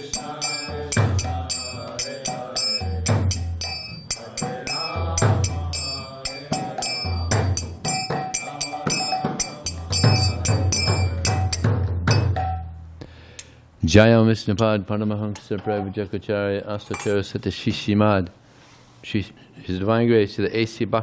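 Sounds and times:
singing voices: 0.0 - 12.2
hand cymbals ringing: 0.0 - 12.8
low drum: 8.9 - 12.8.

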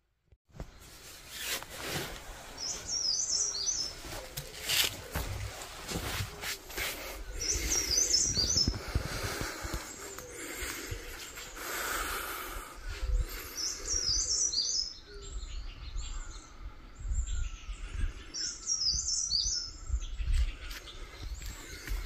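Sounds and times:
songbird chirping: 0.6 - 22.0.

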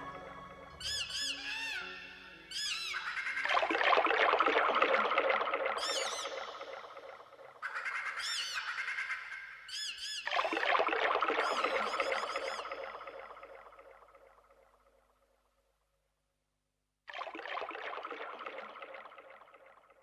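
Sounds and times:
high bird-like electronic chirps: 0.7 - 3.5, 11.4 - 13.5.

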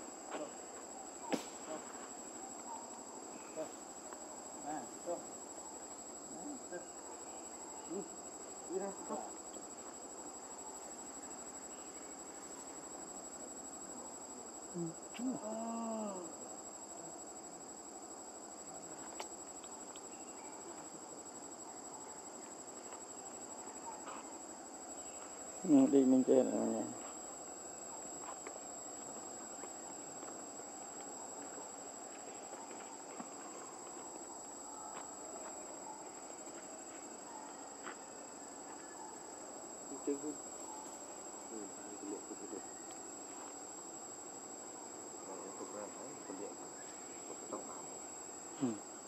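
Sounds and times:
insects droning: 0.0 - 49.0
outdoor background hiss: 0.0 - 49.0
faint voice-like sounds: 14.7 - 17.2, 45.1 - 49.0.

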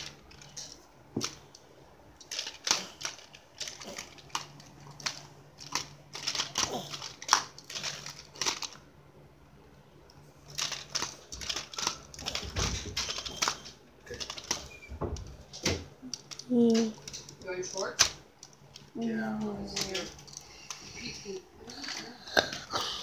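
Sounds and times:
plastic toys clicking: 0.0 - 1.6, 2.2 - 8.8, 10.5 - 14.8, 15.5 - 20.8
plastic bag crinkling: 2.2 - 8.8, 10.4 - 14.7.

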